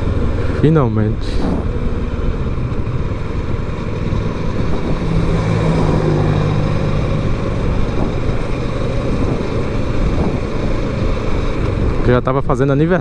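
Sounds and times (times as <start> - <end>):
motorcycle engine running: 0.0 - 12.3
road noise: 0.0 - 13.0
rushing wind: 0.0 - 13.0.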